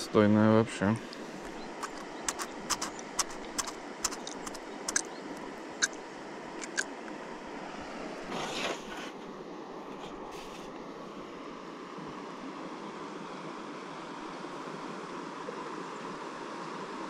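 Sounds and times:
rustle: 1.0s - 11.2s
clicks and scrapes of fishing tackle: 1.1s - 5.1s, 6.6s - 6.9s
steady rushing background: 1.1s - 5.2s.

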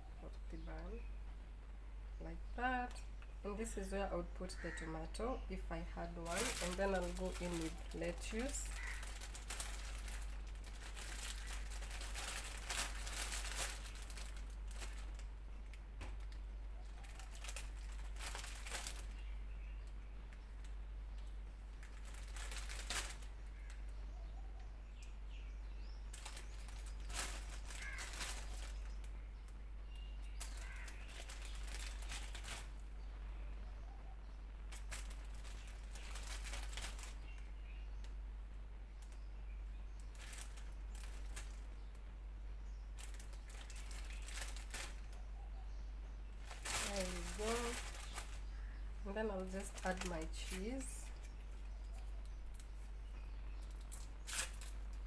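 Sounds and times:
lettuce leaves rustling: 2.2s - 24.0s, 26.0s - 33.1s, 34.6s - 38.1s, 38.9s - 42.0s, 42.8s - 55.0s
plastic bag crinkling: 5.9s - 19.3s, 20.6s - 23.8s, 26.1s - 29.1s, 30.2s - 32.9s, 34.7s - 37.4s, 40.0s - 41.9s, 42.9s - 45.2s, 46.4s - 52.8s, 53.6s - 55.0s.

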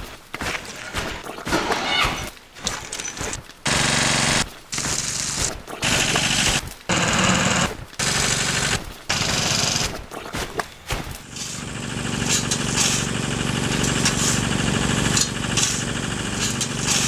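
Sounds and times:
rapid mechanical rattling: 3.6s - 10.2s, 11.2s - 17.0s.

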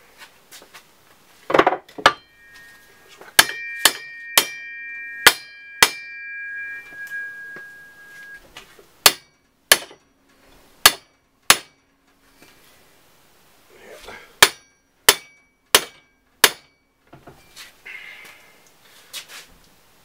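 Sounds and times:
metallic knocks on shaft: 1.5s - 8.4s
metal shaft ringing: 1.9s - 8.4s.

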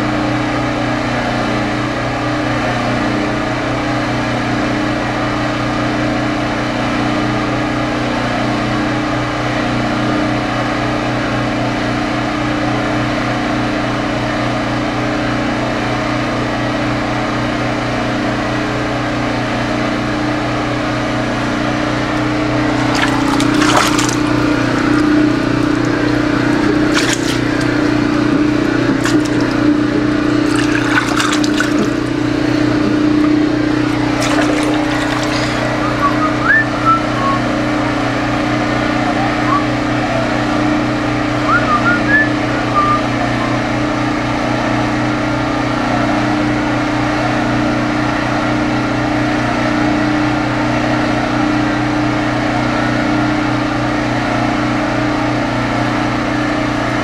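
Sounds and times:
rushing water: 22.6s - 36.3s.

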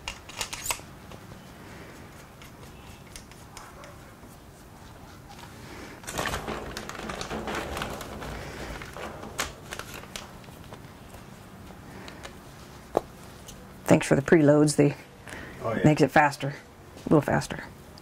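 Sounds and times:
light clicks and handling noises: 0.0s - 13.8s
plastic bag crinkling: 6.0s - 11.4s.

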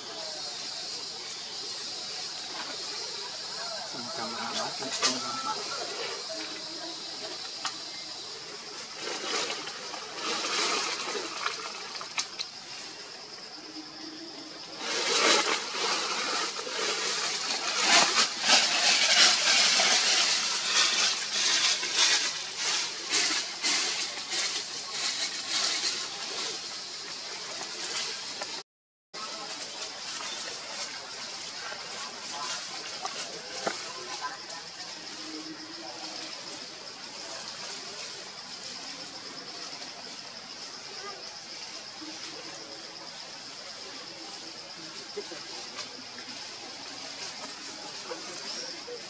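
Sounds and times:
high insect drone: 0.0s - 28.6s
leaves and branches rustling: 0.0s - 28.6s, 29.2s - 49.0s.

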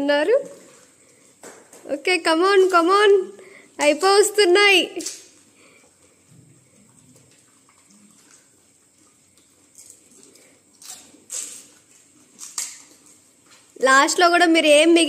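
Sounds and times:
wet slurping: 5.4s - 13.8s.

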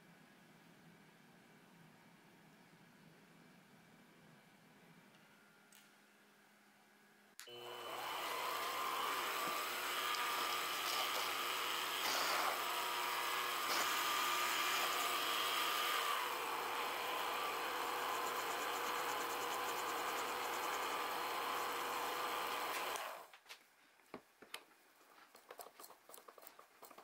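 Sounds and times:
metal lathe running: 7.6s - 23.1s
cutting tool on steel rod: 7.8s - 23.0s
hand file on spinning rod: 8.6s - 16.0s, 16.8s - 23.0s.

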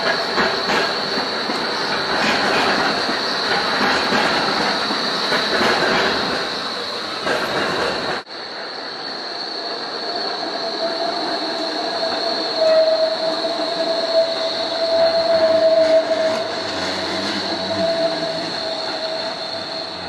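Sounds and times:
low rumble of tram cars: 0.0s - 20.0s
tram wheels squealing on rails: 0.0s - 20.0s.

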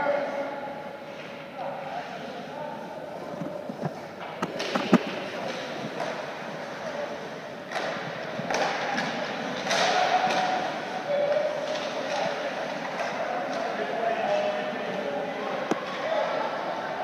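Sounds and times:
stick and puck knocks: 4.3s - 6.2s, 7.7s - 10.6s.

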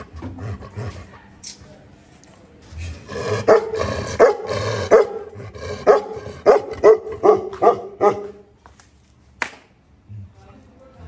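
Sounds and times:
dog barking: 3.4s - 8.4s.

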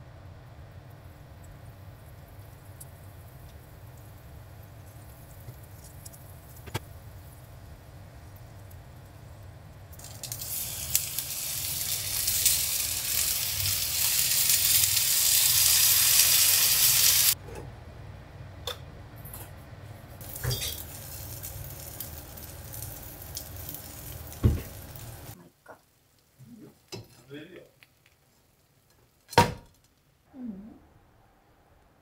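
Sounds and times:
dumplings sizzling in frying pan: 1.0s - 17.4s, 20.2s - 29.3s.

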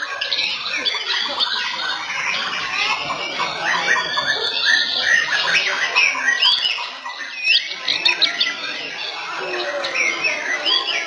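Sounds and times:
birds singing: 0.0s - 11.0s.

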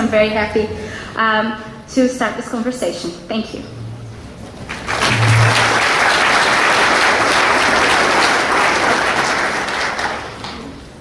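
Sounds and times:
audience applauding: 4.6s - 10.8s.

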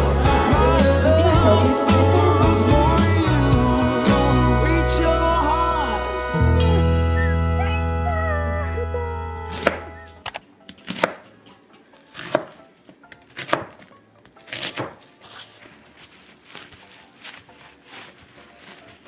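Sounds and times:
tune: 0.0s - 10.3s
knife chopping onion on board: 10.8s - 11.3s, 12.1s - 12.6s, 13.3s - 13.8s, 14.5s - 15.0s.

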